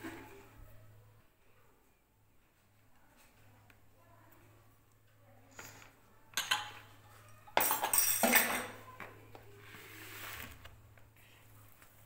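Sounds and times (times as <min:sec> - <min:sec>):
glasses and spoon clinking: 0:06.4 - 0:06.9, 0:07.5 - 0:08.8.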